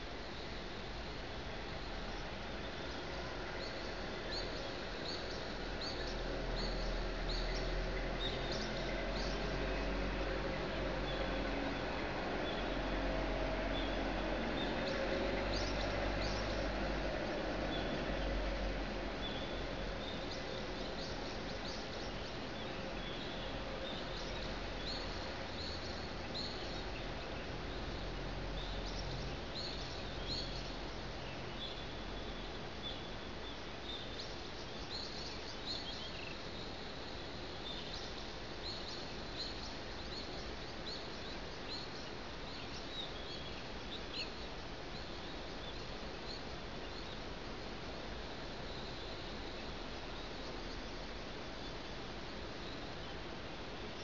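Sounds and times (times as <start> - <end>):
distant city hum: 0.0 - 31.4
small birds chirping: 1.7 - 13.0, 13.7 - 17.0, 18.8 - 54.0.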